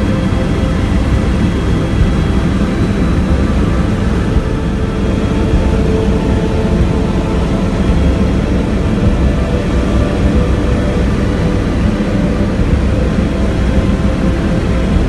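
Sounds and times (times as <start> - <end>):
helicopter engine and rotor drone: 0.0 - 15.0.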